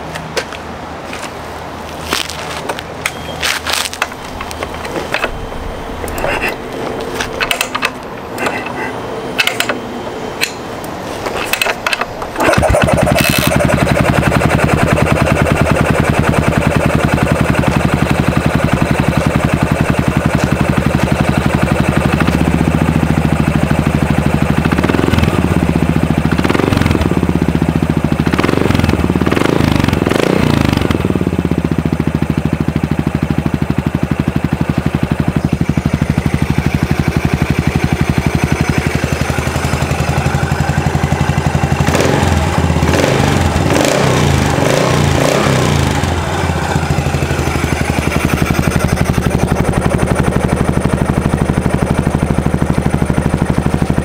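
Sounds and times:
motorcycle engine idling: 3.3s - 54.0s
motorcycle kick-start clicks: 6.1s - 9.8s, 11.3s - 13.8s
motorcycle throttle revs: 11.3s - 52.0s.

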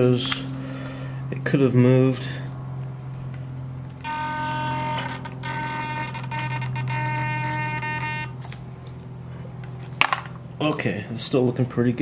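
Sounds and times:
servo whine: 0.0s - 9.0s.

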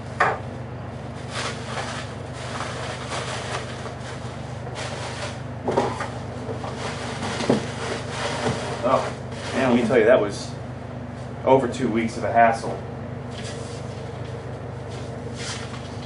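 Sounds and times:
steady mechanical hum: 0.0s - 16.0s.

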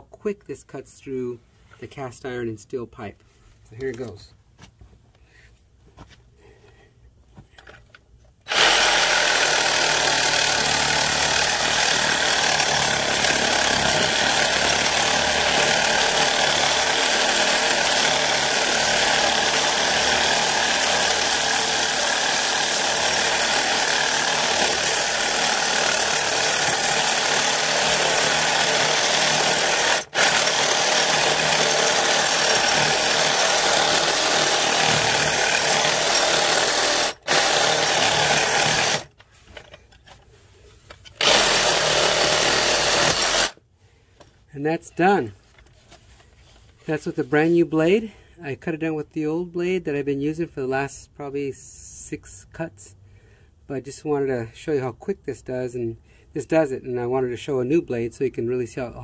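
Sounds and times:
reciprocating saw cutting metal pipe: 8.5s - 39.1s.

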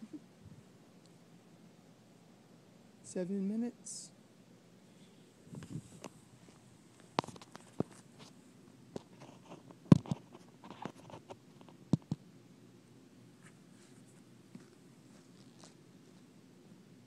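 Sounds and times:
phone being handled: 7.0s - 8.4s.

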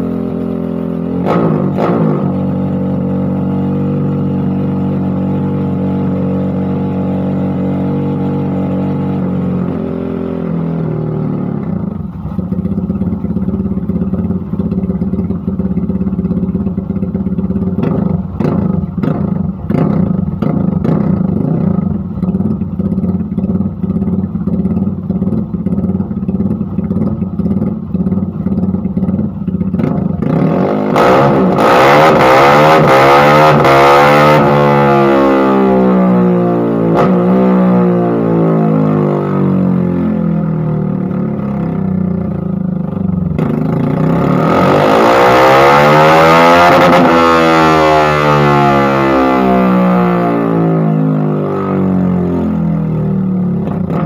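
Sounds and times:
motorcycle engine running: 0.0s - 54.0s
engine pops and crackles: 12.0s - 31.7s.

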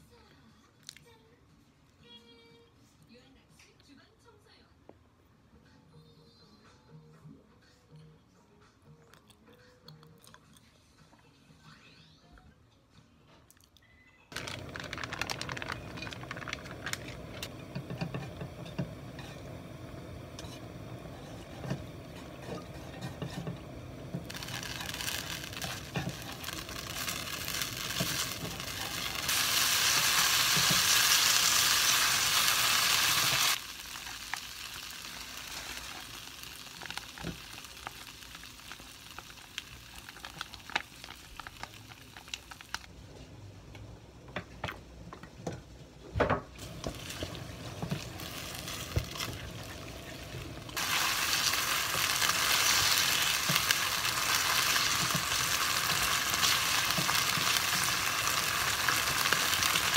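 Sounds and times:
noodles sizzling in a wok: 14.3s - 42.9s, 46.6s - 59.9s
chopsticks and spoon tapping a pan: 17.4s - 19.4s.

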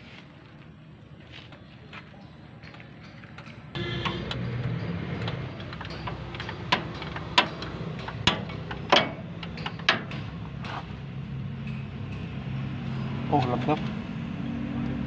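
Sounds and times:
wrench clinking on bolt: 3.0s - 10.4s.

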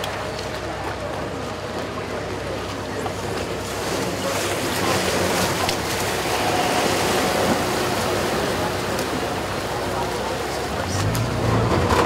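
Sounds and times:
motorboat engine running: 0.0s - 12.0s
motorboat passing: 0.0s - 12.0s
water churning along hull: 0.0s - 12.0s.

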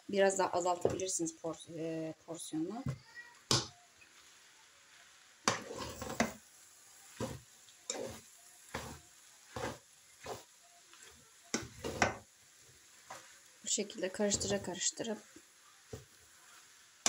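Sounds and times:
faint sizzle of frying: 0.0s - 17.0s
spatula scraping a frying pan: 5.4s - 17.0s.

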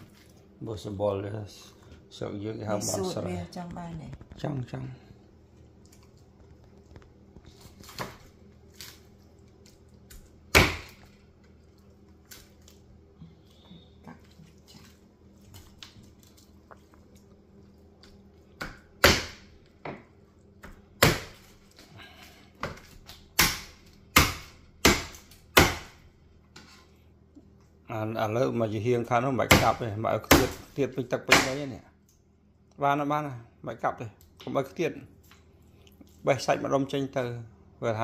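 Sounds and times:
knife chopping bones on wooden board: 10.1s - 11.1s, 18.6s - 20.0s, 20.6s - 21.6s, 22.6s - 26.0s, 29.4s - 31.7s.

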